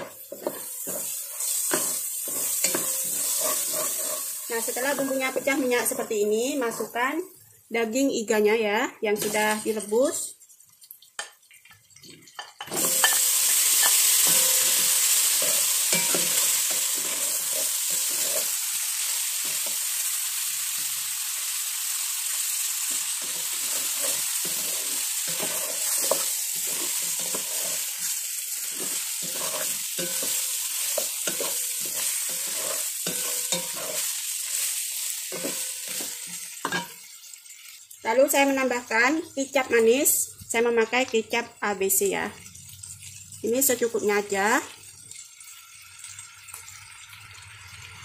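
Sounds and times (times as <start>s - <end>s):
wooden spatula scraping pot: 0.0s - 6.9s, 13.8s - 18.6s, 23.2s - 34.7s
meat sizzling in hot oil: 0.0s - 7.2s, 9.1s - 48.0s.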